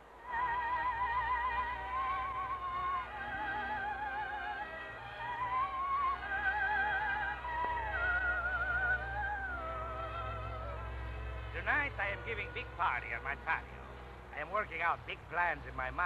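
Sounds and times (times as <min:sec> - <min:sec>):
orchestral music with vibrato melody: 0:00.2 - 0:13.8.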